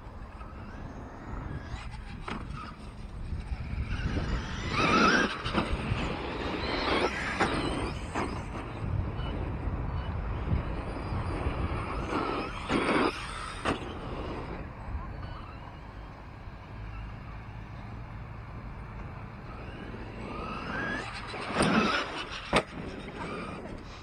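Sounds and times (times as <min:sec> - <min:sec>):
electric motor whining: 0:00.2 - 0:14.7, 0:19.0 - 0:24.0.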